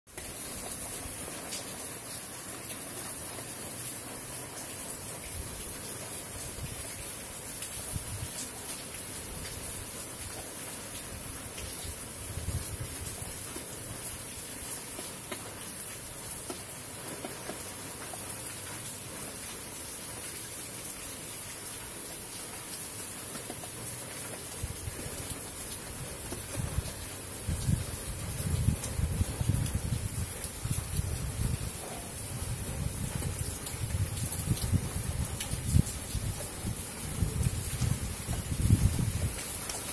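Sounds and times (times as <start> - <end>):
rain falling on foliage: 0.1 - 39.9.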